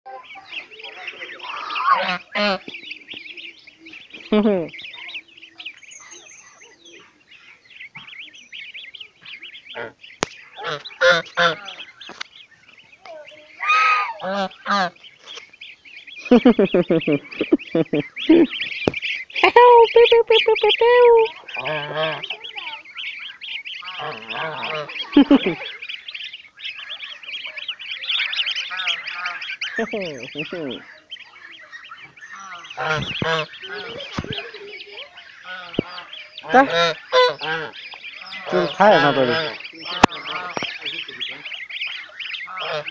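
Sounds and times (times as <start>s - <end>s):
goose honking: 0.1s - 2.7s, 9.2s - 12.2s, 13.6s - 15.0s, 16.3s - 42.9s
goslings peeping: 0.1s - 42.9s.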